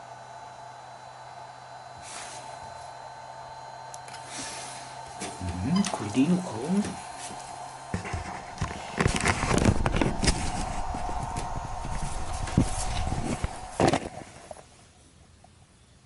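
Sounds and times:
charger alarm beep tone: 5.4 - 6.6.

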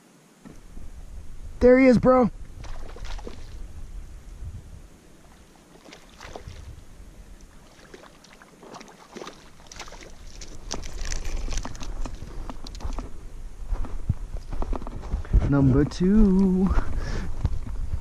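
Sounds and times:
wind buffeting the microphone: 0.4 - 5.5, 6.1 - 7.7, 10.1 - 18.0
small water splashes: 2.6 - 3.6, 5.2 - 13.0.

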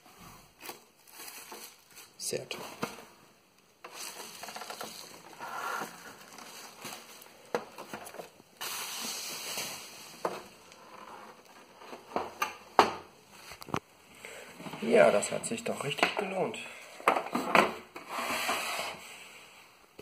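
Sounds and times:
bubble wrap rustling and crinkling: 0.4 - 3.1, 3.8 - 12.1.

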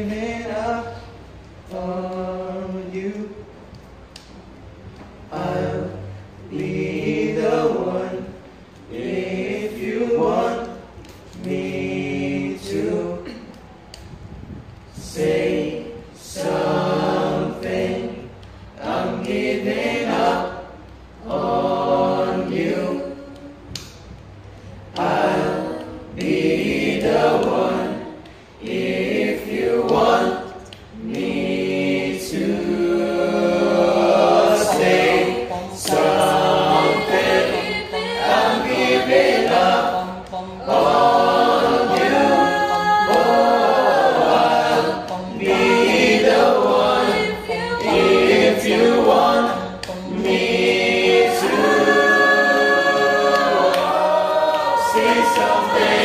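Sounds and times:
choir singing: 0.0 - 3.4, 4.7 - 13.6, 14.9 - 23.9, 24.6 - 56.0.

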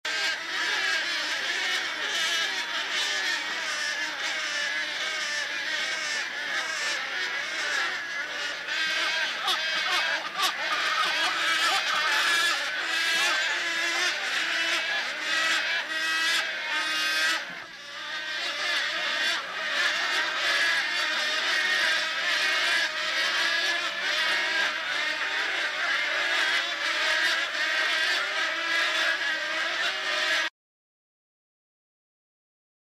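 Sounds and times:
colony of storks calling: 0.1 - 30.5.

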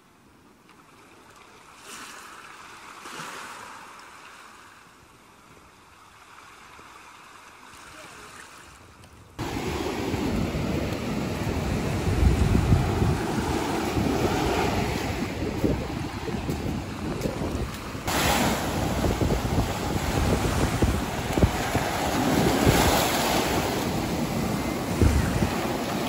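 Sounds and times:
ocean surf washing on sand: 9.4 - 26.0
wind buffeting microphone: 9.4 - 26.0.

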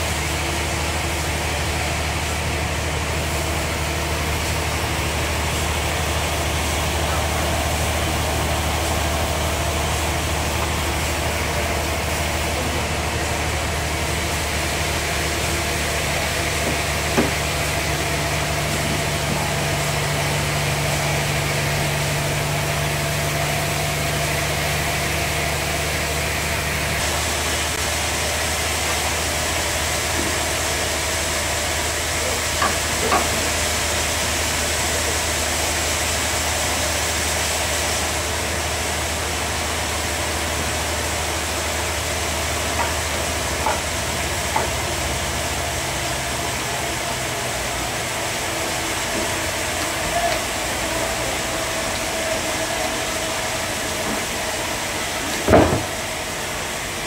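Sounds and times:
band saw machinery humming: 0.0 - 57.0.

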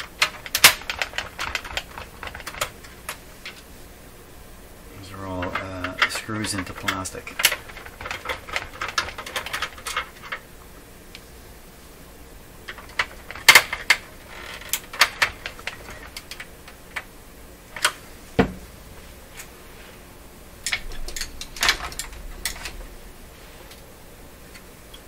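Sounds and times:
dull knock: 18.4 - 18.6.

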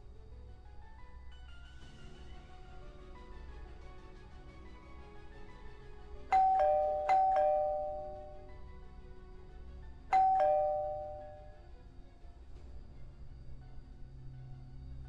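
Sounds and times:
two-tone doorbell chime: 6.3 - 8.6, 10.1 - 11.6.

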